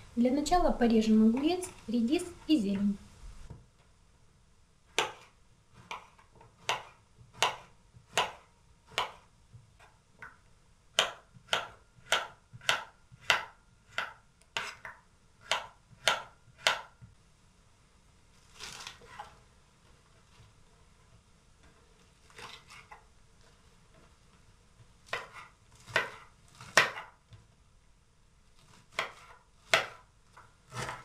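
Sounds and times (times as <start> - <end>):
knife chopping on wooden board: 4.9 - 9.9, 11.0 - 17.0, 25.1 - 27.2, 28.7 - 31.0.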